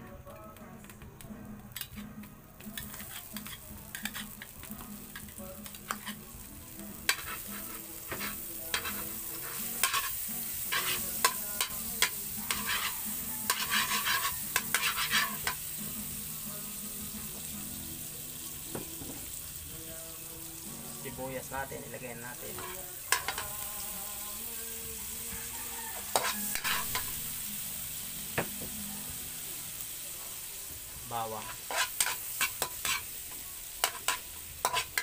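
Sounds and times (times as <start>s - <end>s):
butter sizzling in a wok: 0.3s - 35.0s
metal spatula scraping a pan: 2.8s - 4.5s, 5.9s - 6.3s, 7.1s - 15.7s, 22.4s - 23.6s, 25.9s - 27.2s, 31.2s - 33.1s, 33.8s - 35.0s.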